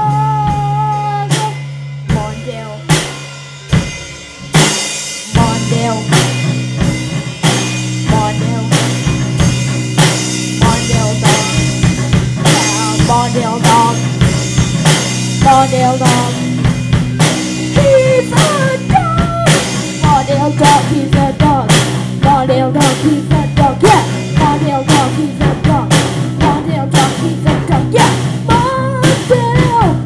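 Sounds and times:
bass and guitar: 0:00.0 - 0:30.0
drum kit steady beat: 0:00.0 - 0:30.0
wavering lead melody: 0:00.0 - 0:30.0.

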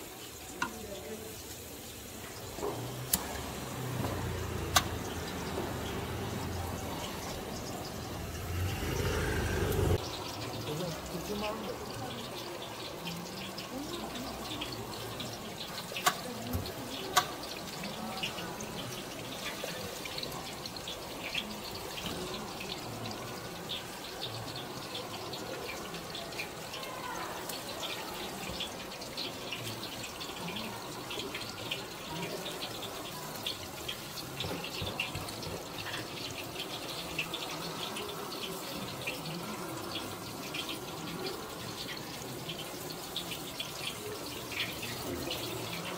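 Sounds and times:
meat sizzling on a grill: 0:00.0 - 0:45.9.

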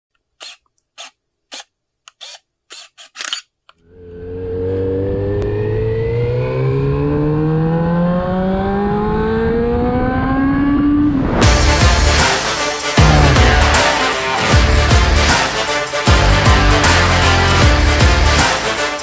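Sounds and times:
camera shutter clicks: 0:00.4 - 0:03.5
motorcycle engine accelerating: 0:03.8 - 0:11.7, 0:13.0 - 0:13.8.

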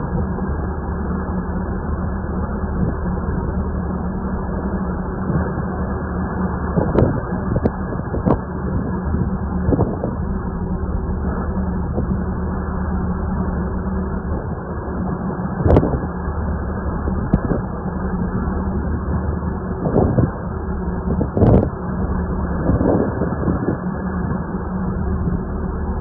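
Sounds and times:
boat engine humming: 0:00.0 - 0:26.0
water noise: 0:00.0 - 0:26.0
wind: 0:00.0 - 0:26.0.

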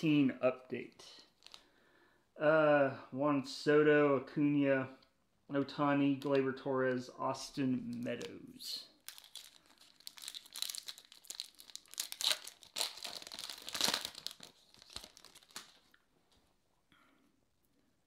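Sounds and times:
foil wrapper crinkling and tearing: 0:01.3 - 0:01.6, 0:09.0 - 0:16.0.

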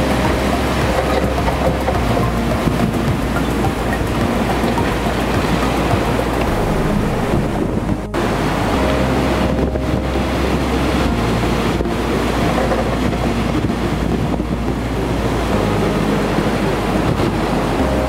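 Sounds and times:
waves breaking over rocks: 0:00.0 - 0:18.0.

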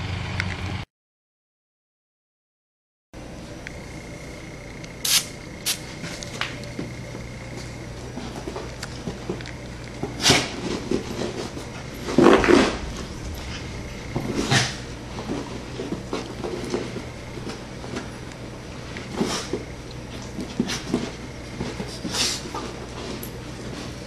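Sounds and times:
spray bottle hissing: 0:05.0 - 0:05.9
scuffling and bumping: 0:05.9 - 0:24.0.

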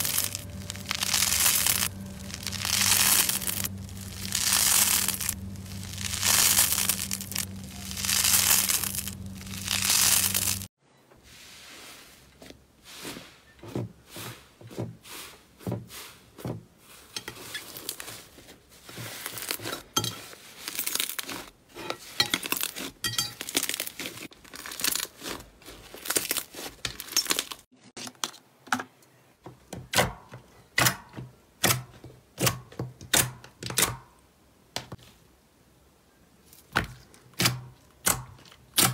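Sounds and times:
foam slime crackling and tearing: 0:00.0 - 0:10.7, 0:17.4 - 0:27.7
slime squelching: 0:00.0 - 0:10.7.

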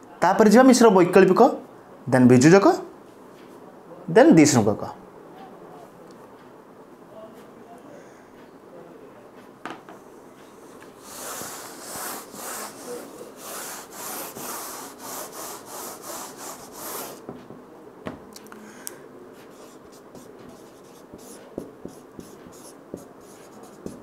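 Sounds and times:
eraser rubbing on whiteboard: 0:11.0 - 0:17.3, 0:19.4 - 0:24.0.

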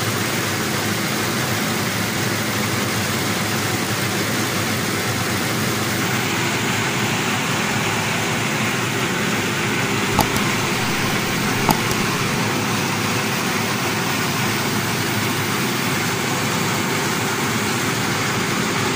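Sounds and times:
short sharp clicks: 0:10.1 - 0:12.4.

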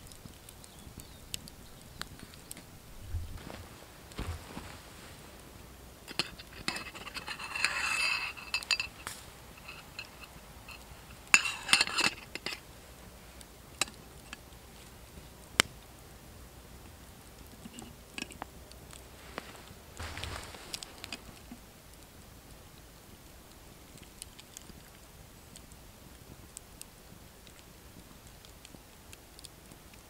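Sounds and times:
metal utensil scraping kettle: 0:06.1 - 0:12.6.

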